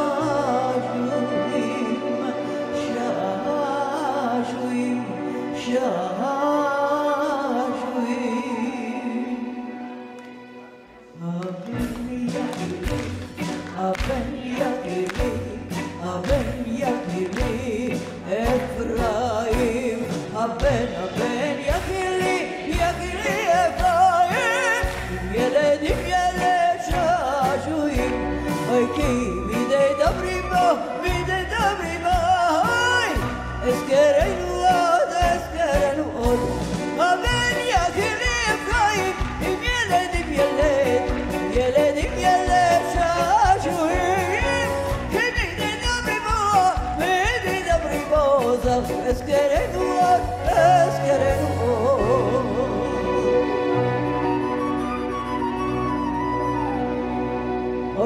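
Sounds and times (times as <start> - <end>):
woman singing with vibrato: 11.1 - 54.0
live band with drums: 11.7 - 53.7.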